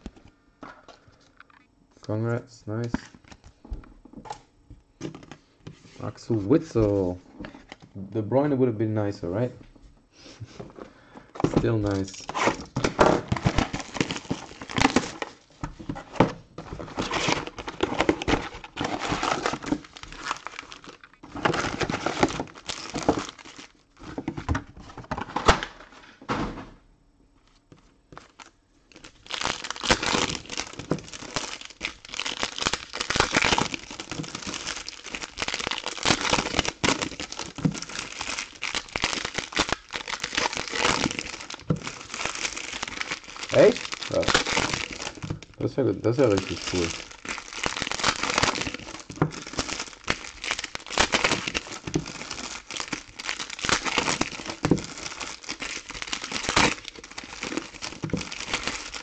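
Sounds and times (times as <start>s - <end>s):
foil wrappers crinkling: 10.9s - 25.9s, 27.7s - 59.0s.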